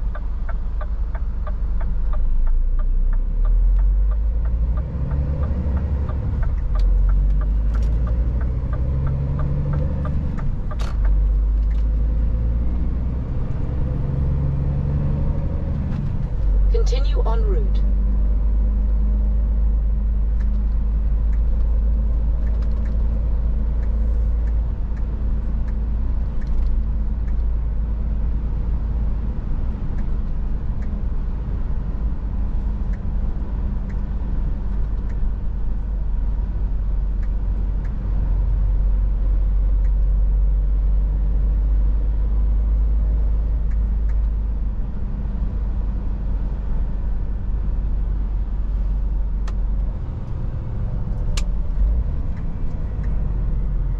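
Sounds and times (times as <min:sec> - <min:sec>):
diesel engine drone: 0:00.0 - 0:53.9
road and tyre noise: 0:00.0 - 0:53.9.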